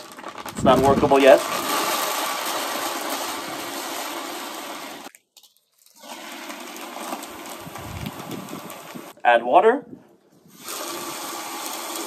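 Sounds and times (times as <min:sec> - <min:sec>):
hose water rushing into bucket: 0:00.5 - 0:05.1, 0:05.8 - 0:09.2, 0:10.4 - 0:12.0.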